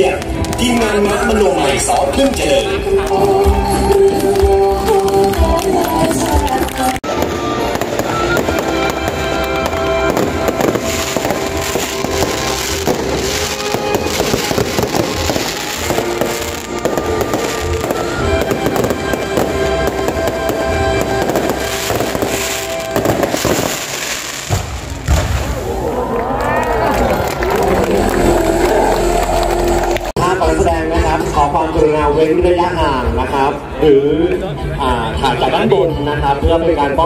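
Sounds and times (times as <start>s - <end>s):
music playing: 0.0s - 25.0s, 26.7s - 37.0s
fireworks bursting and crackling: 0.0s - 26.0s.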